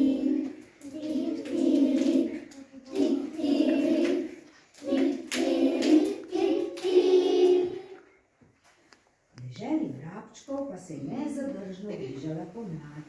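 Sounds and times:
children singing in unison: 0.0 - 8.1.

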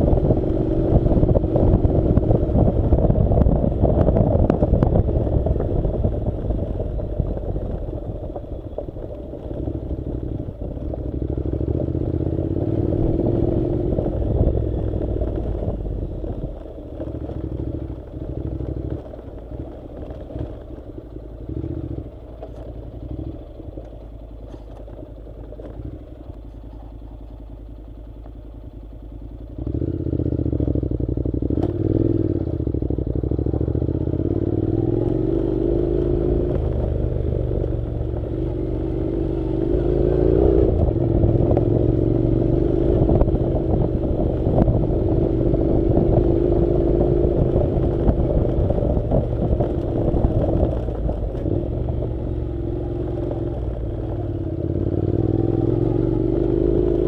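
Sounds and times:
motorcycle engine revving: 0.0 - 57.0
motorcycle rattling: 0.0 - 57.0
gravel clattering and scraping: 23.7 - 27.4.

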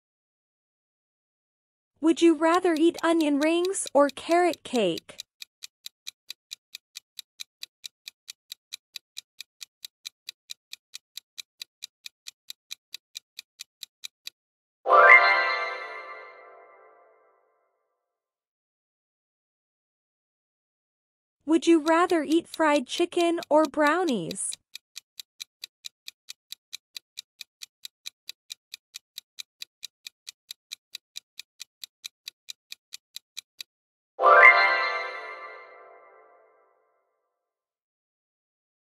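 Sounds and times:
clock ticking: 2.0 - 14.4, 21.5 - 33.7.

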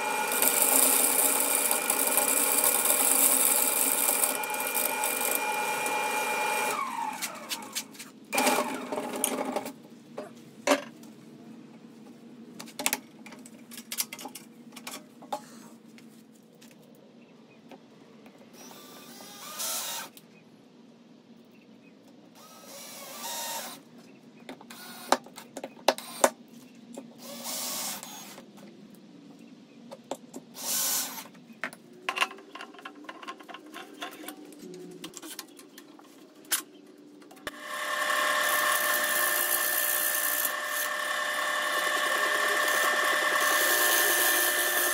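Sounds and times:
wood lathe motor humming: 0.0 - 7.4, 37.5 - 44.9
cordless drill driving screws: 0.1 - 7.7, 37.5 - 44.9.

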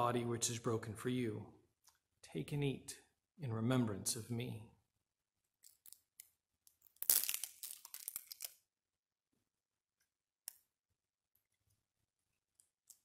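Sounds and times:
film tearing and peeling: 5.6 - 8.6.

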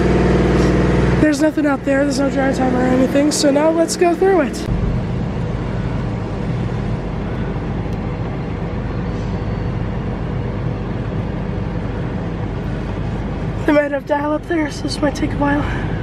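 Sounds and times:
car engine idling: 0.0 - 8.9.

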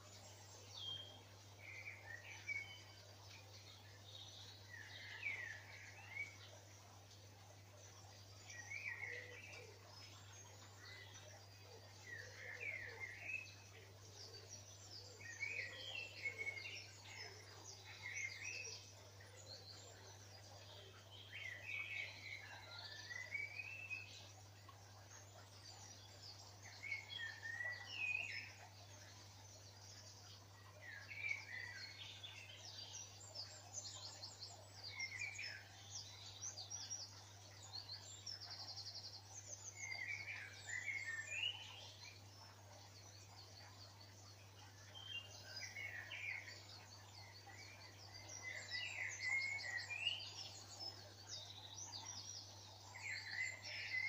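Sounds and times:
bird repeating song phrase: 45.0 - 52.4.

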